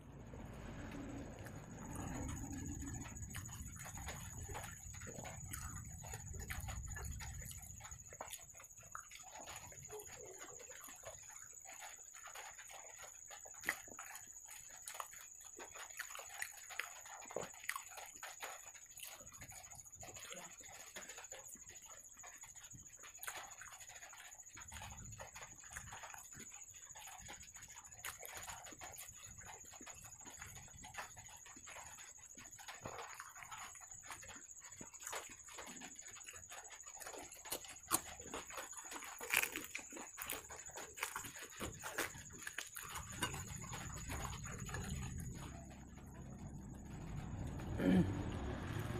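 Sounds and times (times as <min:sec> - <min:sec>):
wet chewing and lip smacking: 0:00.5 - 0:48.9
fingers tearing fried bread: 0:36.8 - 0:45.8.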